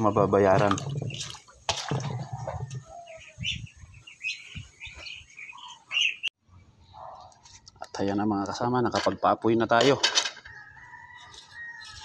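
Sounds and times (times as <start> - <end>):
poultry chirping: 2.1 - 7.4.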